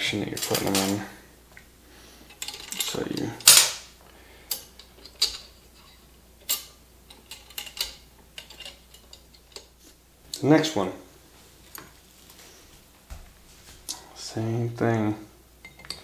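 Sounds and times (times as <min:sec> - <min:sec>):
metal spokes clinking: 0:00.3 - 0:01.0.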